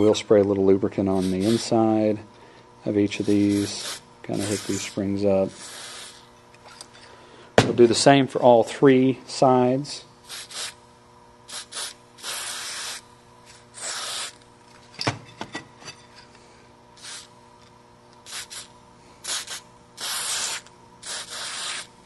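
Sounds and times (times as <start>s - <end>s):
aerosol spray hisses: 1.2s - 1.7s, 3.3s - 6.2s, 10.3s - 10.8s, 11.5s - 13.0s, 13.8s - 14.4s, 18.3s - 21.9s.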